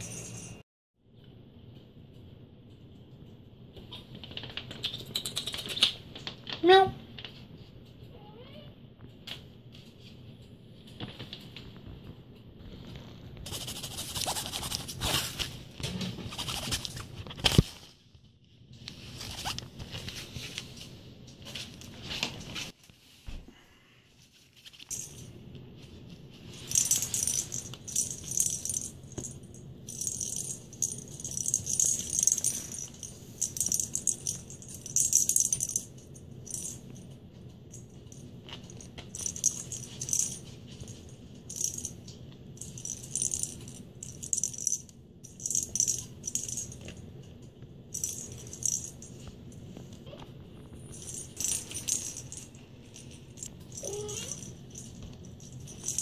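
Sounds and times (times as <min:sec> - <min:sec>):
plastic toy ball jingling: 0:26.6 - 0:37.0, 0:37.7 - 0:42.0, 0:42.6 - 0:47.0, 0:47.9 - 0:49.2, 0:50.8 - 0:56.0.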